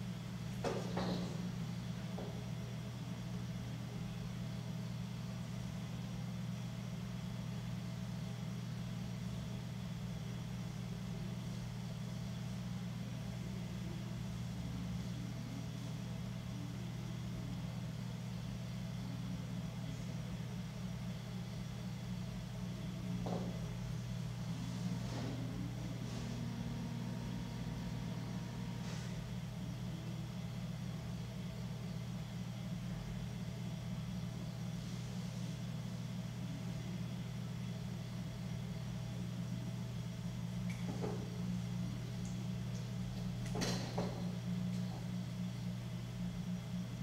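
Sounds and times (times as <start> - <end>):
potter's wheel motor humming: 15.1 - 34.7.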